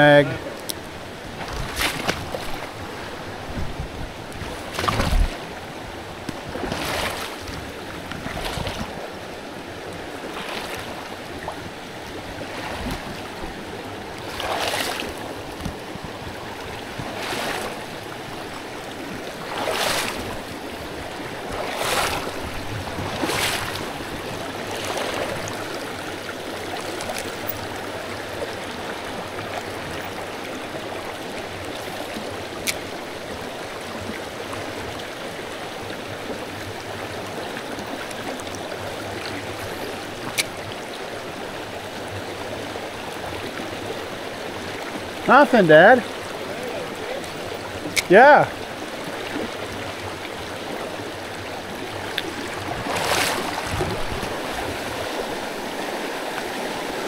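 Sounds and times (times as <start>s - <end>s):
creek rushing over stones: 0.0s - 57.0s.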